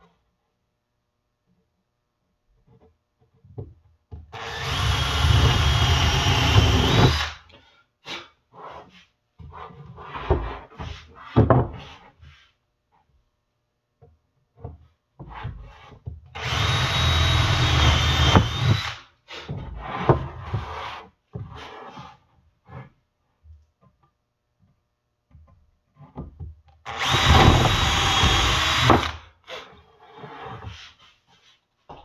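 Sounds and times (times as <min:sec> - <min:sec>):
cordless drill boring into wood: 0:04.4 - 0:07.4, 0:16.4 - 0:19.0, 0:26.9 - 0:29.2
boards knocking and rubbing: 0:09.4 - 0:12.2, 0:19.5 - 0:22.9, 0:25.3 - 0:29.1.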